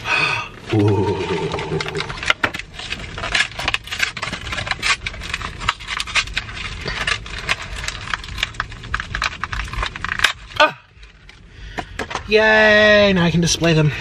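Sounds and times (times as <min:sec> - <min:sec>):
paper bag and wrappers crinkling: 0:00.7 - 0:11.4.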